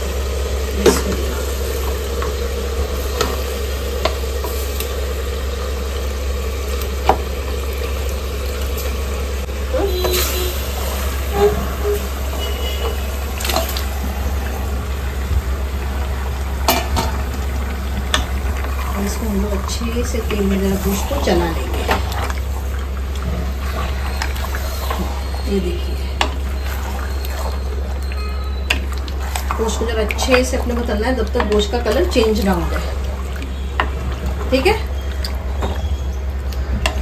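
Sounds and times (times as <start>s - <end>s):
meat sizzling in hot oil: 0.0s - 37.0s.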